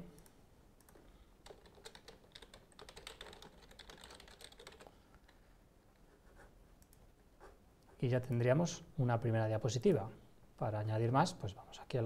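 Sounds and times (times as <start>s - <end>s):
typing on keyboard: 0.2s - 5.4s.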